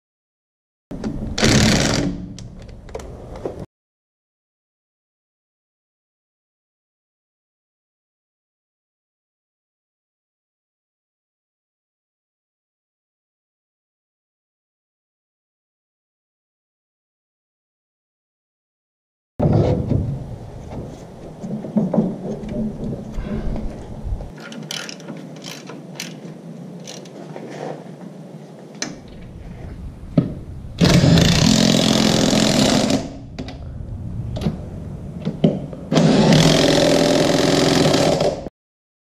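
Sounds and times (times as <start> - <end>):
impact wrench running: 1.4 - 2.4, 30.8 - 33.2, 35.9 - 38.5
metal clicks and clinks: 24.4 - 27.1.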